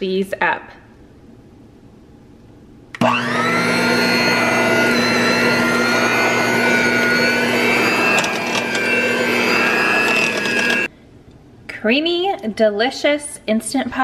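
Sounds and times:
electric mixer motor whine: 3.0s - 10.9s
mixer clicks: 3.0s - 10.9s.

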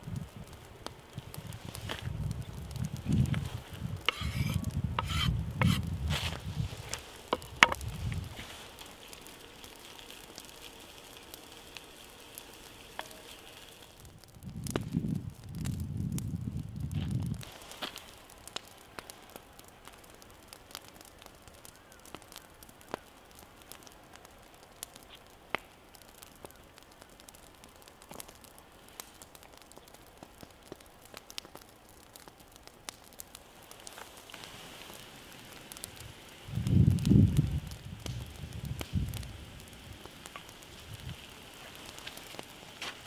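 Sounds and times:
fire crackling and popping: 0.0s - 43.0s
onions sizzling in oil: 1.2s - 18.4s, 33.5s - 43.0s.

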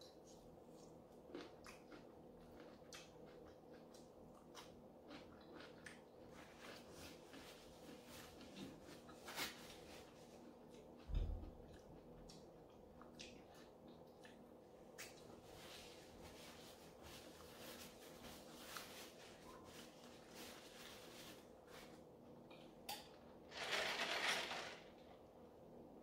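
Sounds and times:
mouth chewing: 0.2s - 9.2s
paper napkin rustling: 15.5s - 22.0s.

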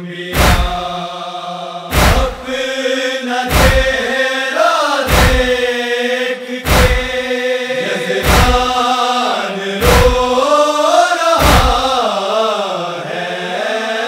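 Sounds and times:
men chanting in unison: 0.0s - 14.0s
chest-beating thumps: 0.4s - 1.0s, 1.9s - 2.6s, 3.5s - 4.0s, 5.1s - 5.6s, 6.6s - 7.3s, 8.2s - 8.8s, 9.8s - 10.4s, 11.4s - 12.0s.

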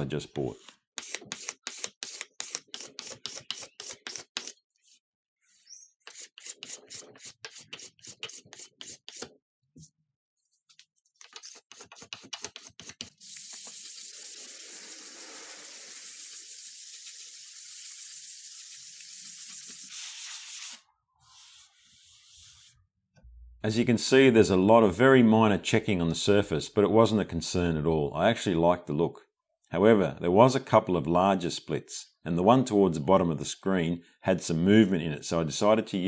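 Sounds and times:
hand scraper on wood: 0.5s - 9.3s, 11.2s - 13.2s
sanding block rubbing wood: 0.5s - 9.3s.

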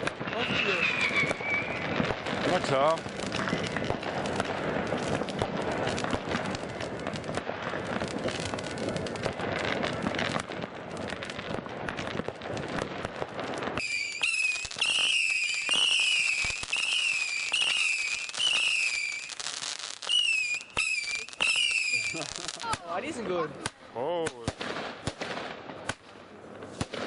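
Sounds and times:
fireworks shrill whistles: 0.0s - 5.2s, 13.7s - 22.7s
fireworks crackling bangs: 0.0s - 27.0s
fireworks pops: 0.0s - 27.0s.

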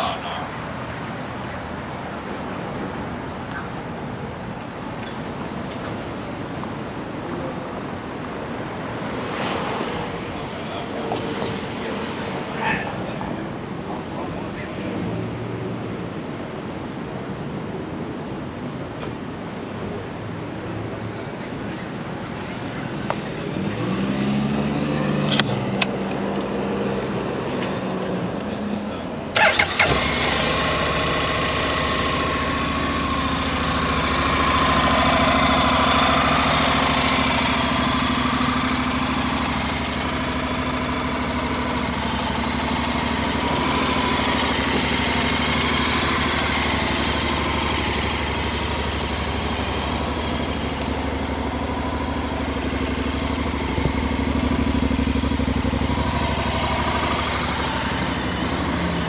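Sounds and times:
motorcycle engine starting and idling: 29.3s - 59.0s.

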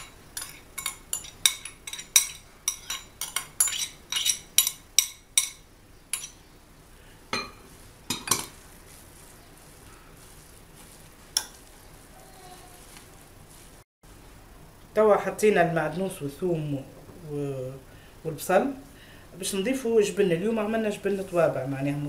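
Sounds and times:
spoon tapping ceramic bowl: 7.3s - 8.5s.

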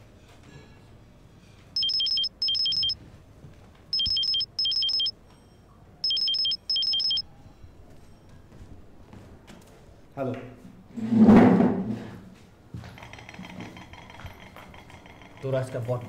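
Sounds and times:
mobile phone ringtone beeping: 1.8s - 3.0s, 4.0s - 5.1s, 6.0s - 7.2s.

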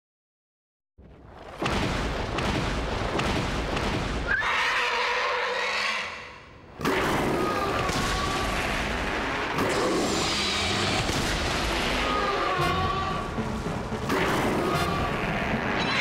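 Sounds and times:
screeching monster cry: 4.3s - 6.4s, 9.7s - 11.0s, 11.9s - 13.2s, 14.6s - 16.0s.

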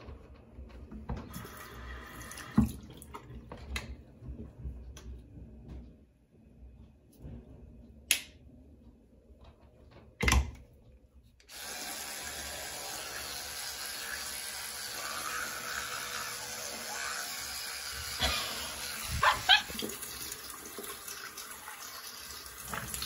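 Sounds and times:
electric toothbrush buzzing: 11.5s - 19.9s.

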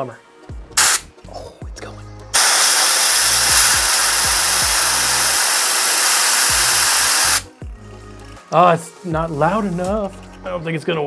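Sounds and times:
compressed air hissing: 0.8s - 1.1s, 2.4s - 7.5s.

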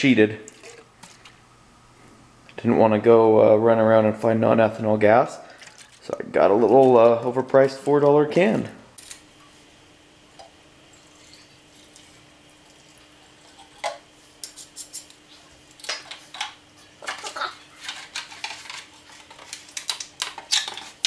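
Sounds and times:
plastic clicks and clatters: 15.8s - 21.0s.

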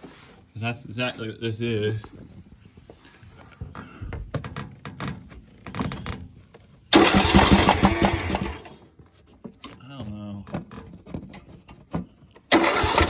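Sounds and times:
engine electric starter cranking: 6.9s - 8.9s, 12.4s - 13.0s.

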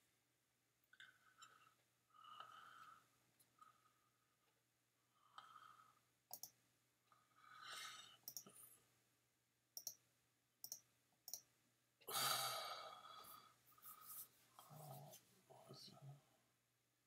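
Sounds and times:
computer mouse clicks: 6.3s - 6.6s, 8.2s - 8.6s, 9.8s - 10.0s, 10.6s - 11.5s.

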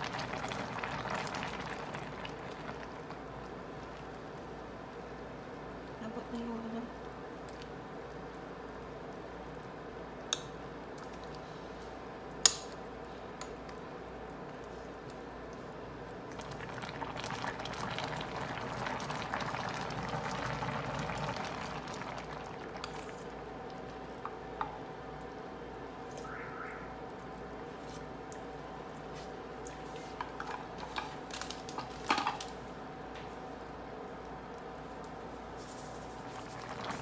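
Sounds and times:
soup simmering in pot: 0.0s - 6.0s, 7.0s - 37.0s.

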